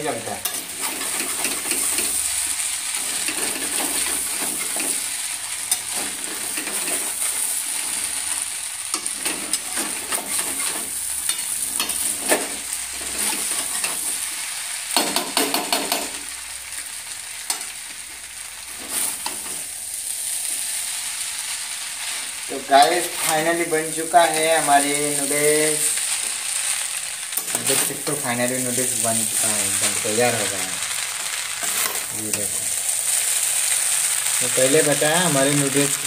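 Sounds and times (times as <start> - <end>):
noodles sizzling in a pan: 0.0 - 36.0
spatula scraping and tapping pan: 8.9 - 14.1, 14.9 - 16.3, 31.6 - 32.4.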